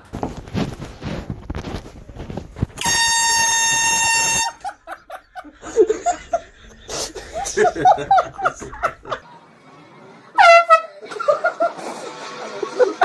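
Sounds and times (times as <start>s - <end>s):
rustling and clatter: 0.0s - 2.8s
air horn blast: 2.8s - 4.6s, 10.4s - 11.0s.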